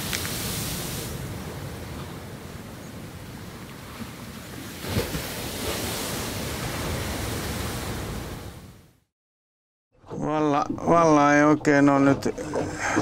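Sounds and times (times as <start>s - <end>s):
sea surf rushing: 0.0s - 8.8s
wind: 0.0s - 9.0s.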